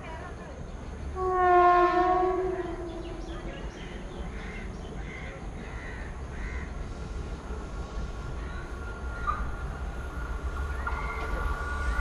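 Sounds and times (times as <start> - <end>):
train horn blast: 1.2 - 3.6.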